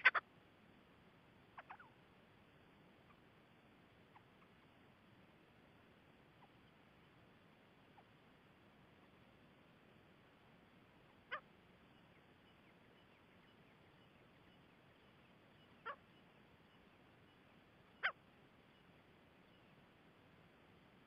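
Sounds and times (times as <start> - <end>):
francolin calling: 0.0 - 0.2, 1.5 - 2.0, 4.0 - 4.8, 6.3 - 6.9, 11.0 - 19.8
faint hiss: 0.0 - 21.0.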